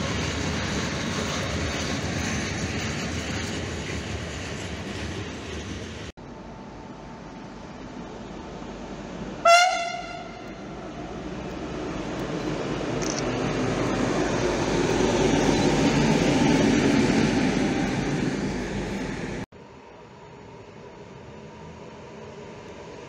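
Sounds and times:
locomotive engine and wheels passing: 0.0 - 23.0
locomotive horn toot: 9.4 - 10.8.

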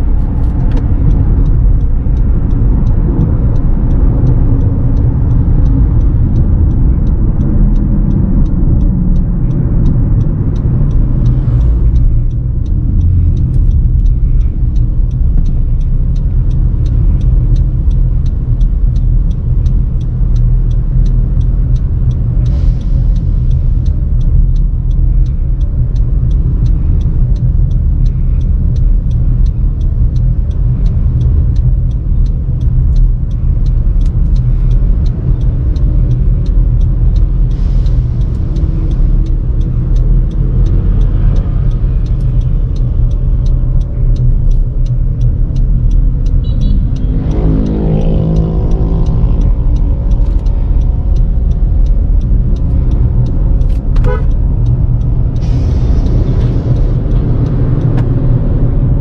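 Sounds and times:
car cabin road rumble: 0.0 - 59.0
engine revving up: 45.8 - 51.7.

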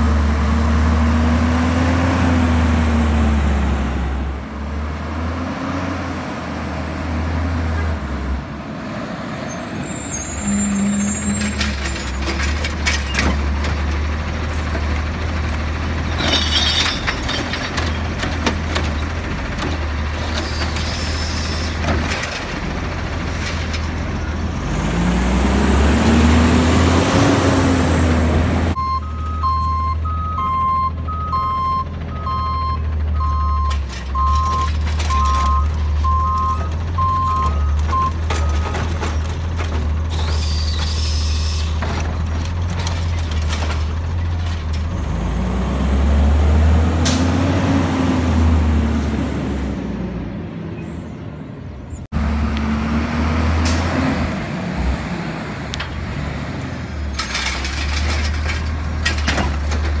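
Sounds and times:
garbage truck diesel engine: 0.0 - 60.0
backup alarm beeping: 28.8 - 38.6.

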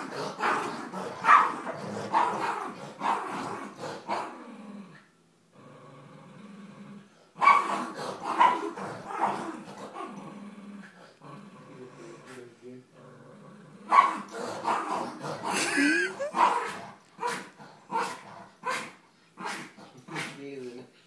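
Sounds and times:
dogs play-growling: 0.0 - 21.0
dogs barking sharply: 0.4 - 3.2, 7.4 - 9.6, 13.9 - 15.1, 15.8 - 20.4.

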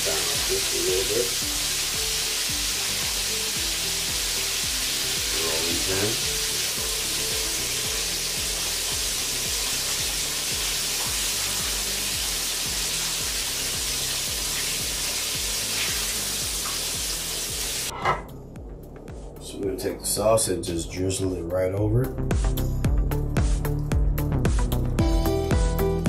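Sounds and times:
chicken sizzling in hot oil: 0.0 - 17.9
background music with bass beat: 0.0 - 20.3, 21.4 - 26.0.

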